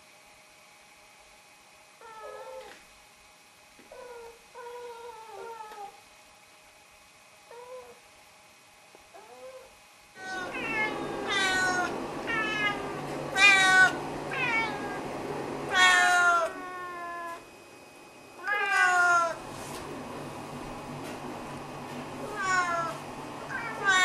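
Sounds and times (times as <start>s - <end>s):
cats meowing: 10.2s - 15.1s, 15.7s - 17.4s, 18.4s - 19.4s, 22.2s - 24.0s.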